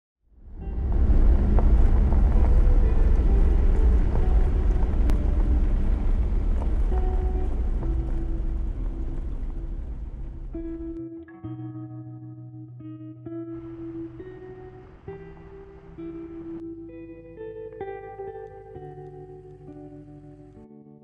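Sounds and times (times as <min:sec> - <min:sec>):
vehicle rumbling on gravel: 0:00.4 - 0:11.0.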